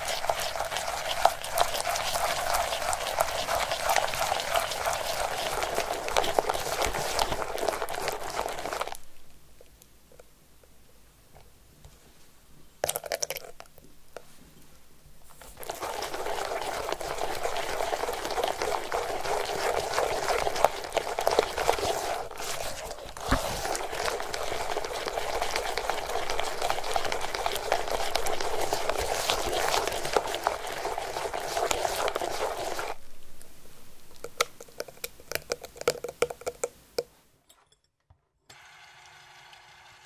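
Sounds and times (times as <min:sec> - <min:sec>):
whisk beating in glass bowl: 0:00.0 - 0:09.0, 0:15.5 - 0:33.0, 0:34.2 - 0:36.8.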